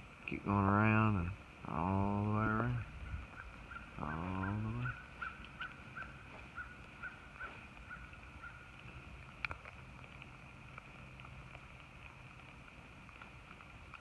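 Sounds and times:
rain on a pond: 0.0s - 14.0s
faint chirping animal call: 2.5s - 8.8s.

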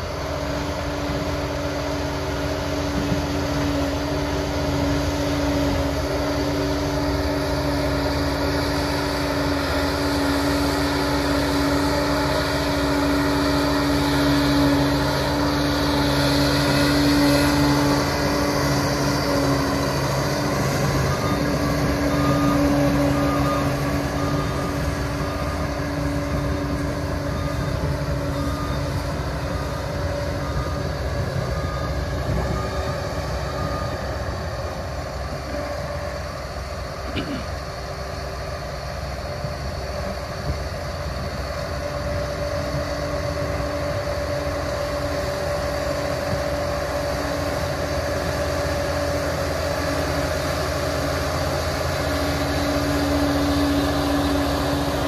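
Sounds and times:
dozer diesel engine under load: 0.0s - 55.0s
blade pushing soil: 3.0s - 33.9s.

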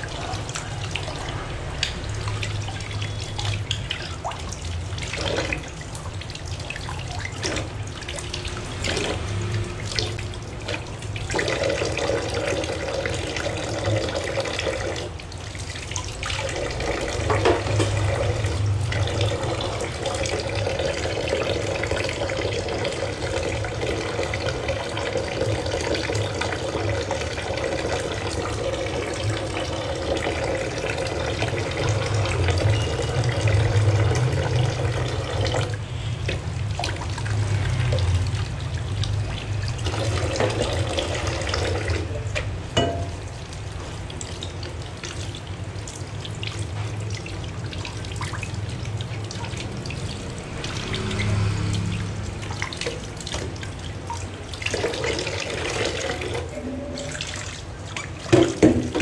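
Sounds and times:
tap running into sink: 17.1s - 18.4s, 39.9s - 43.3s, 57.9s - 59.0s
dishes knocking: 42.8s - 43.2s.

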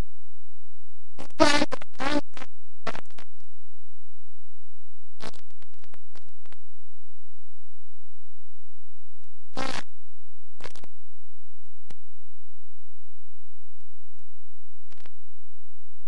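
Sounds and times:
crackles and clicks: 1.2s - 3.5s, 5.2s - 6.6s, 9.2s - 9.9s, 10.6s - 10.9s, 11.6s - 12.0s, 14.9s - 15.2s.

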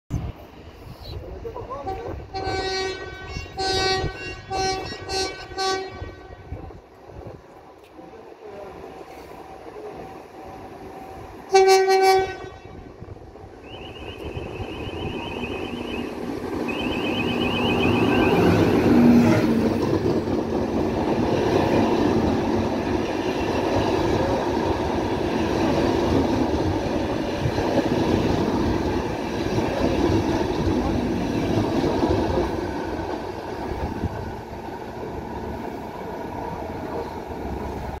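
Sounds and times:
train wheels rumbling on rail: 0.1s - 38.0s
high pulsing beep: 13.7s - 18.8s.

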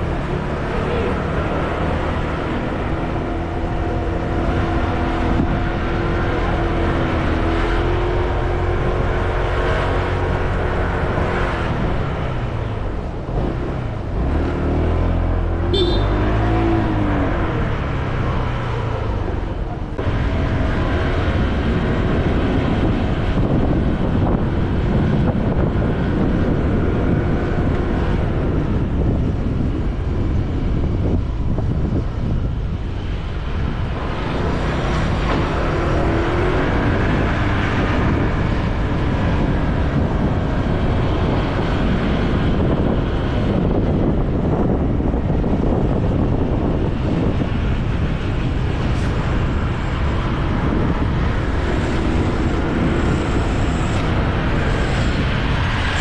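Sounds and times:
wind rushing over microphone: 0.0s - 56.0s
motorcycle engine running: 15.8s - 16.2s.

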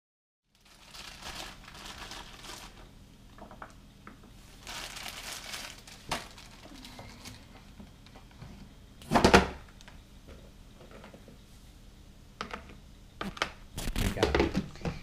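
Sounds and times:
crinkling and rustling of handling: 0.5s - 8.8s.

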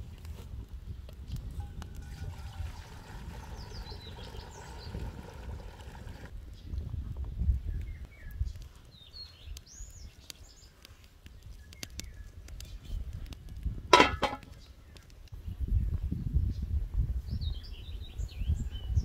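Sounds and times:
wood fire crackling: 0.0s - 6.4s, 8.5s - 15.3s
birds chirping: 3.3s - 6.7s.

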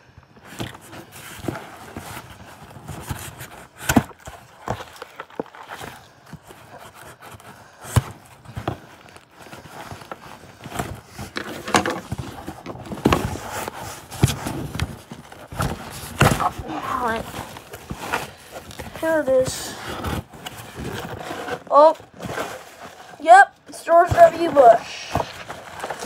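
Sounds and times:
cardboard box knocks and scrapes: 9.7s - 23.1s.

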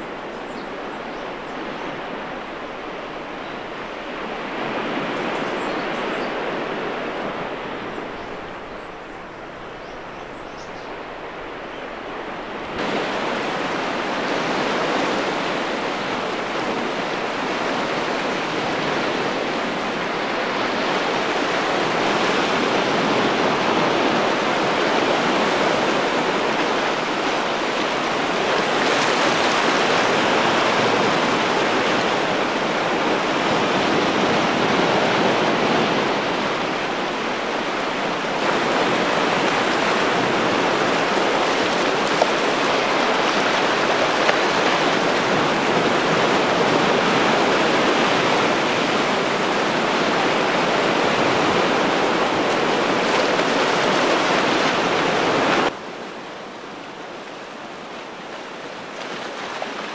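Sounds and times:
surf washing over rocks: 10.9s - 59.9s.

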